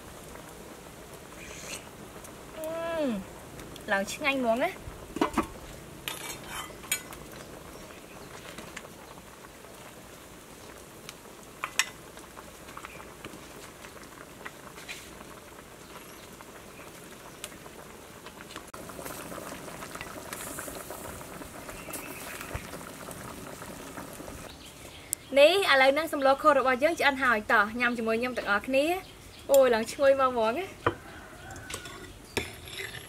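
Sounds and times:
stew bubbling in a pot: 0.0 - 33.0
ladle clinking: 5.2 - 7.2.

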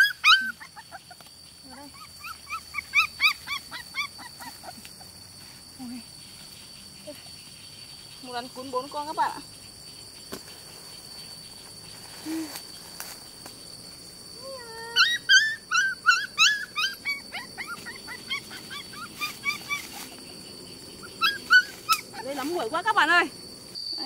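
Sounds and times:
puppies whining and yelping: 0.0 - 1.2, 1.9 - 4.9, 14.5 - 20.3, 20.9 - 22.3.

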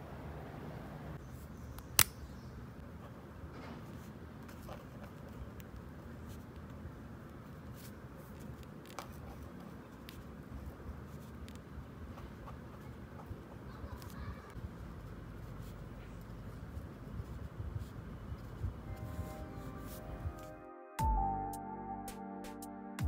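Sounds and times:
sharp click: 1.8 - 2.2
pen scratching on paper: 7.6 - 20.5.

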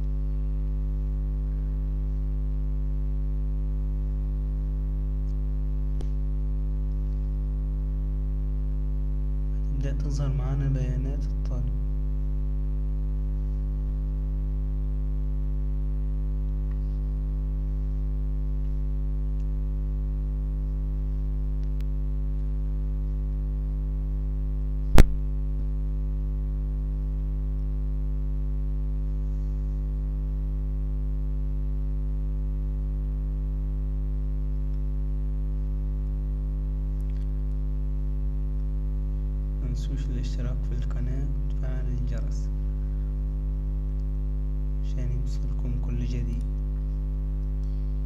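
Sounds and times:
electrical mains hum: 0.0 - 48.0
sharp click: 24.9 - 25.2.

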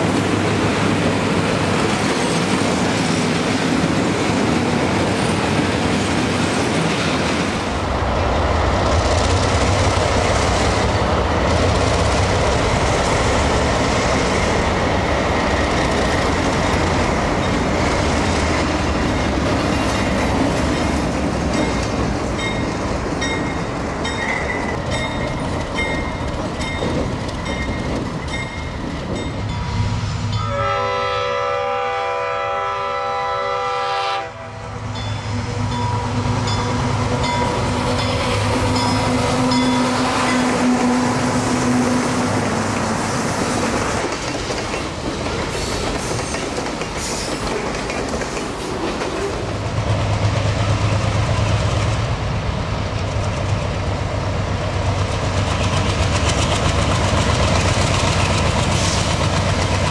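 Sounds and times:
diesel locomotive engines: 0.0 - 59.9
freight train passing: 0.0 - 59.9
wheels clicking over rail joints: 15.6 - 29.4, 42.3 - 51.0, 54.9 - 59.9
multi-note air horn: 30.4 - 34.6.

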